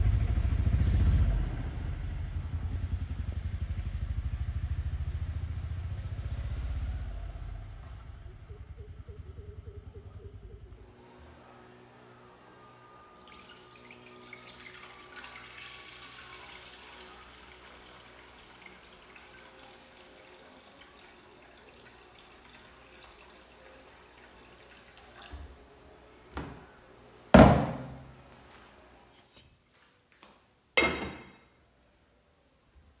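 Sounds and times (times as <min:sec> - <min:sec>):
milk pouring into a saucepan: 0:12.9 - 0:25.8
knocks: 0:27.4 - 0:28.0.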